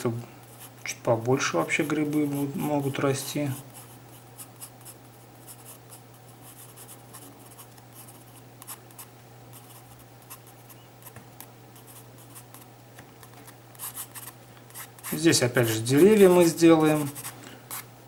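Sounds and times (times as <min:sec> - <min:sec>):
steady low hum: 0:00.0 - 0:18.0
pencil sketching on paper: 0:16.0 - 0:17.8.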